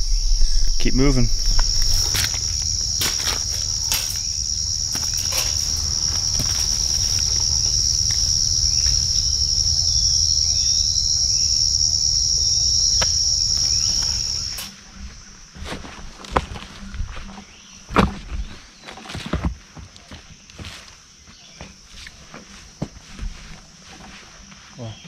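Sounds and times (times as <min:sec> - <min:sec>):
low rumble: 0:00.0 - 0:12.9
insects chirping: 0:00.0 - 0:25.0.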